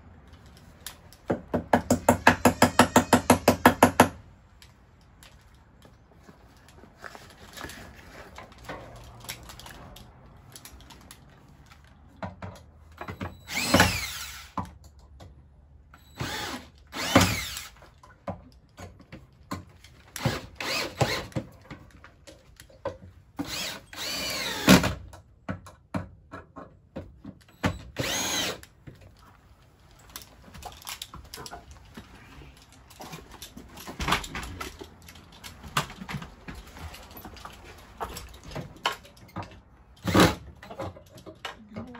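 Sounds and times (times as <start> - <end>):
tool and wood clattering: 0.3 - 4.2, 29.9 - 41.9
cordless drill driving screws: 13.4 - 14.6, 16.2 - 17.8, 20.1 - 21.4, 23.4 - 25.0, 27.8 - 28.7.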